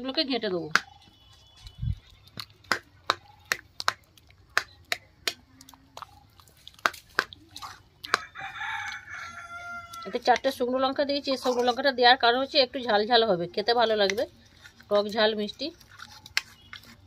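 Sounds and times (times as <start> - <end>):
rooster crowing: 8.1 - 10.2.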